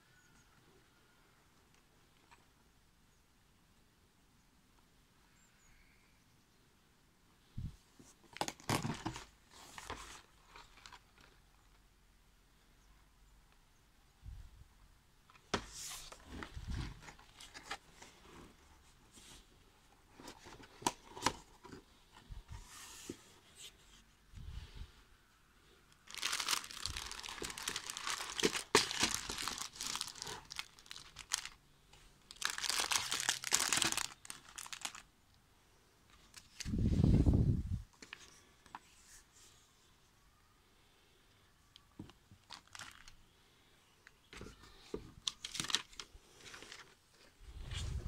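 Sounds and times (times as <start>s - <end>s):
plastic bags crinkling: 26.0s - 31.6s, 32.2s - 35.1s, 42.4s - 43.2s, 45.2s - 47.0s.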